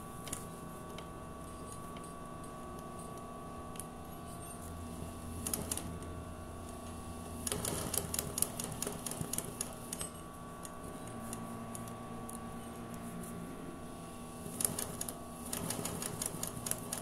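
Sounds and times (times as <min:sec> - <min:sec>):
steady hum: 0:00.0 - 0:17.0
sewing machine needle clattering: 0:07.4 - 0:10.1, 0:14.5 - 0:17.0.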